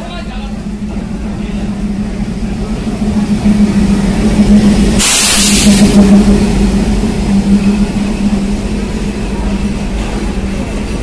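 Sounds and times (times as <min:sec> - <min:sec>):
diesel locomotive engine drone: 0:00.0 - 0:11.0
low rumble: 0:00.3 - 0:11.0
short burst of hiss: 0:05.0 - 0:05.8.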